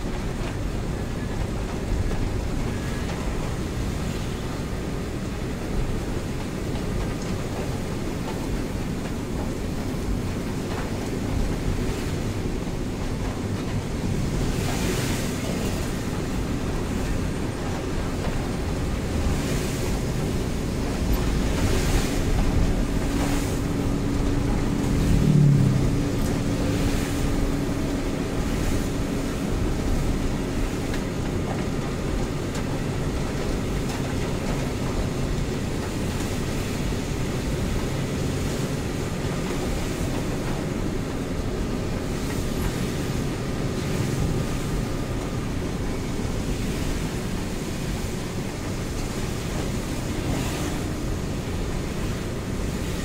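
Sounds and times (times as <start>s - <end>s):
diesel engine running: 0.0s - 53.0s
rain and tyres hissing: 0.0s - 53.0s
truck passing with low drone: 0.9s - 35.6s.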